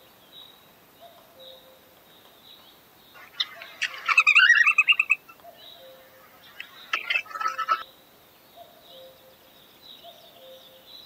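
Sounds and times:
songbird rapid chirping phrase: 2.7s - 8.0s
faint bird calls: 3.1s - 11.0s.

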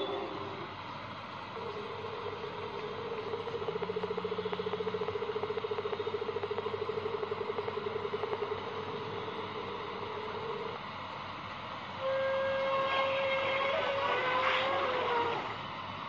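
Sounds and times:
whale call pulsing tone: 0.0s - 0.7s, 12.0s - 15.6s.

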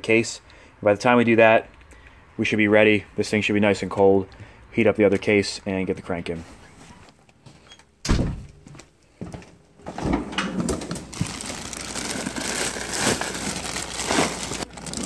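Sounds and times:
plastic bags rustling: 10.6s - 15.0s.

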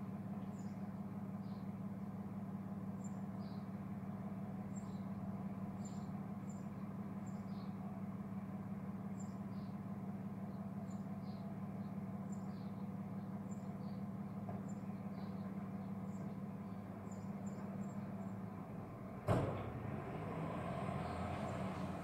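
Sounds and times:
small birds chirping: 0.3s - 1.8s, 2.9s - 7.9s, 9.1s - 19.0s
truck diesel engine running: 3.8s - 22.0s.

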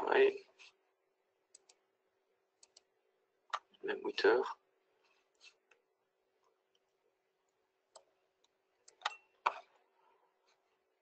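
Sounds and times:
computer mouse clicks: 1.5s - 1.8s, 2.6s - 2.9s, 7.9s - 9.7s.

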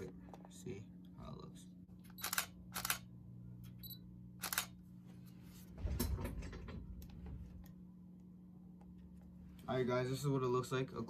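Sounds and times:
camera shutter clicks: 2.2s - 3.1s, 4.4s - 4.7s.

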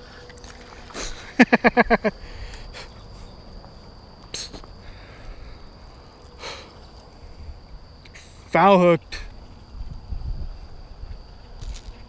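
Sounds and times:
high-pitched insect buzz: 0.0s - 12.0s
wind rumble on microphone: 9.3s - 12.0s.

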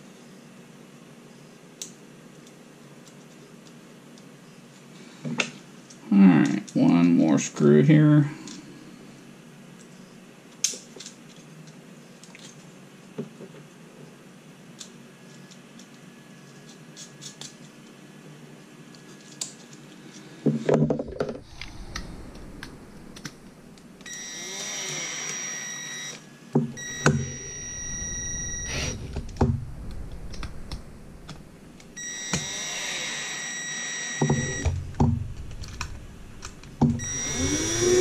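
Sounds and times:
cordless drill whining: 24.0s - 26.2s, 26.8s - 29.2s, 32.0s - 34.7s, 36.9s - 38.0s.

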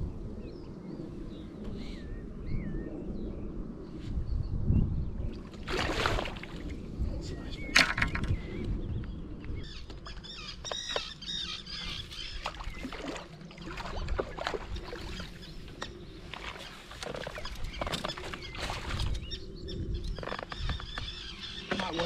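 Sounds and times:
fish splashing and thrashing: 5.4s - 6.8s, 12.2s - 19.2s
water sloshing: 5.4s - 6.9s, 12.2s - 19.2s.

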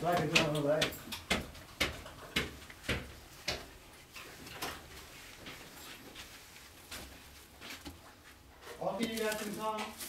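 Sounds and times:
footsteps: 0.0s - 10.0s.

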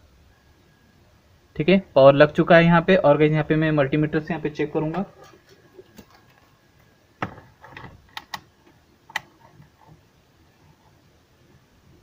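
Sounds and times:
multimeter probes clicking: 7.7s - 8.5s.

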